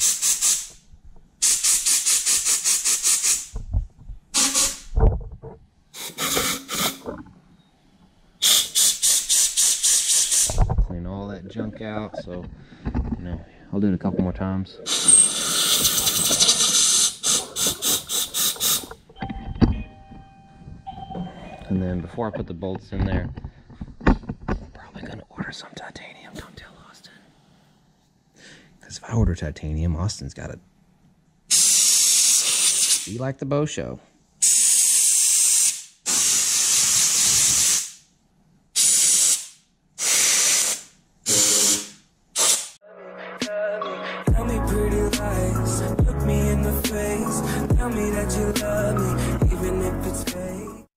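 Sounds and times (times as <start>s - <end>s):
compressed air blow gun hissing: 0.0s - 0.8s, 1.4s - 3.5s, 4.4s - 4.9s, 8.4s - 10.6s, 14.9s - 19.0s, 31.5s - 33.1s, 34.4s - 38.0s, 38.8s - 42.8s.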